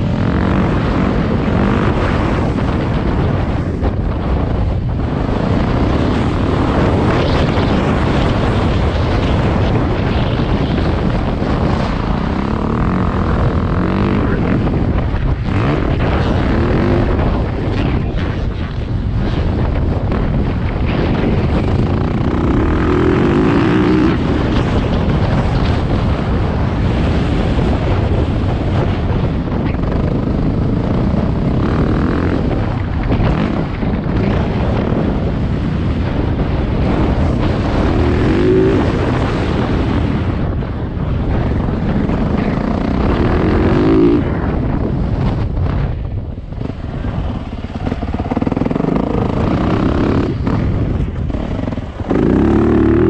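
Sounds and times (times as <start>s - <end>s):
dirt bike engine revving: 0.0s - 3.4s, 5.2s - 18.5s, 19.3s - 25.7s, 30.1s - 35.1s, 36.5s - 40.2s, 41.7s - 44.8s, 46.6s - 53.0s
wind buffeting microphone: 0.0s - 53.0s.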